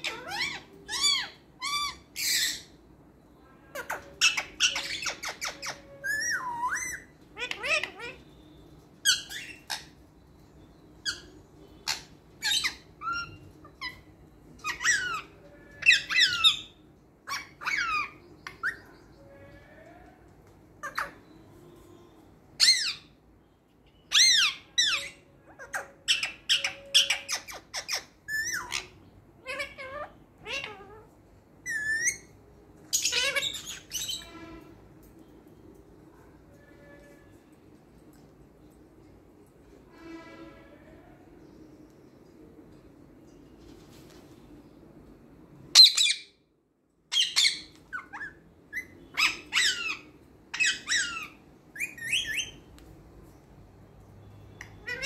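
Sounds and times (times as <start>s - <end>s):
parakeet squawking: 0.0s - 2.8s, 3.6s - 8.4s, 9.0s - 10.0s, 11.0s - 19.8s, 20.8s - 21.3s, 24.0s - 32.3s, 32.9s - 34.5s, 45.7s - 46.4s, 47.1s - 52.7s, 54.6s - 55.0s.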